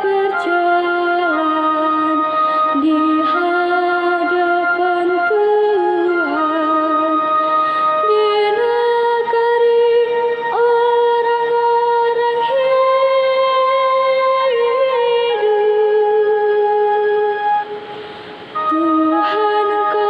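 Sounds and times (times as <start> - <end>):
girl singing solo: 18.5 - 20.0.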